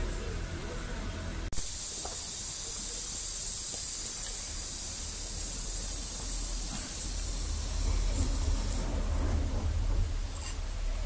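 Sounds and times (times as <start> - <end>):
steady high hiss: 0.0 - 11.0
low background rumble: 4.3 - 11.0.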